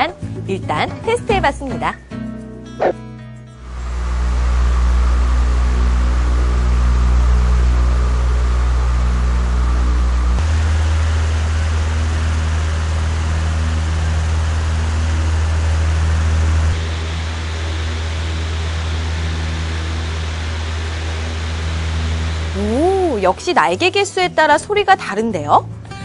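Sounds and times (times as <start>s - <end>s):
electric fans running: 3.6s - 25.4s.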